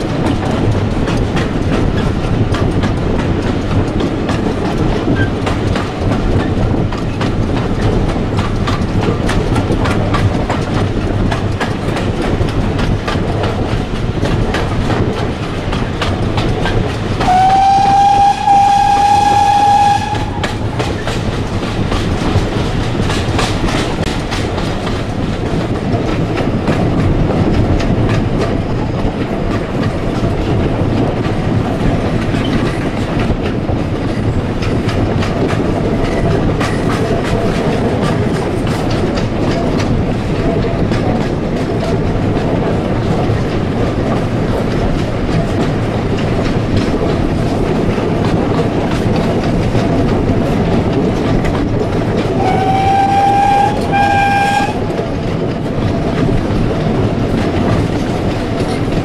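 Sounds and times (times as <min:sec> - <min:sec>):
train carriages rumbling on track: 0:00.0 - 0:59.0
wheels clicking over rail joints: 0:00.0 - 0:59.0
steam locomotive whistle: 0:17.2 - 0:20.8, 0:52.4 - 0:54.9.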